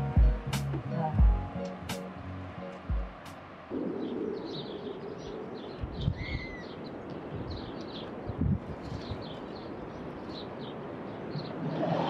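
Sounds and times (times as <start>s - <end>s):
outdoor background rush: 0.0s - 12.0s
small birds chirping: 3.7s - 11.8s.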